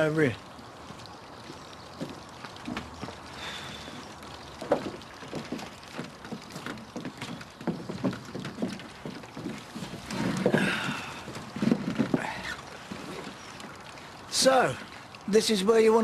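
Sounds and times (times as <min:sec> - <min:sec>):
footsteps on wooden deck: 0:00.0 - 0:15.0
wooden chairs being moved: 0:00.9 - 0:13.6.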